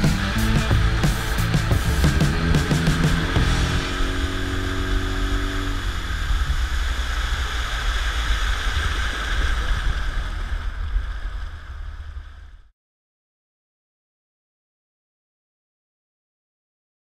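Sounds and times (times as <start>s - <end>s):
outboard motor rumble: 0.0s - 12.7s
water rushing along hull: 0.0s - 12.7s.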